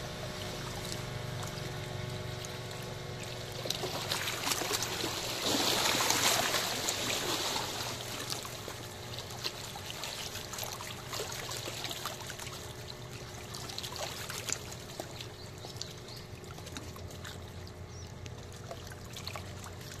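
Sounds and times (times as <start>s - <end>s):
waves lapping against rocks: 0.7s - 15.9s.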